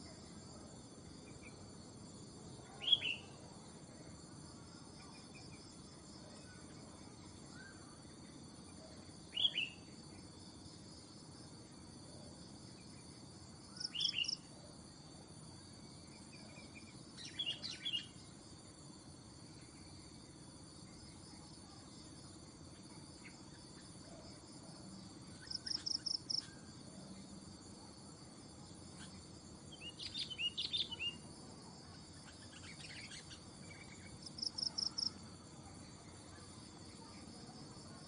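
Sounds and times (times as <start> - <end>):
high insect buzz: 25.0 - 35.5.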